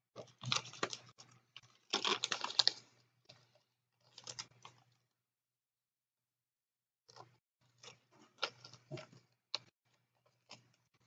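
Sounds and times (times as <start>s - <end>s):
plastic bags crinkling: 0.2s - 3.0s.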